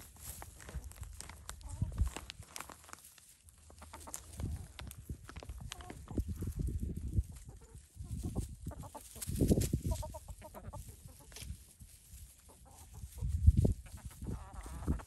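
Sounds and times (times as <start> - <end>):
hens clucking: 3.4 - 15.0.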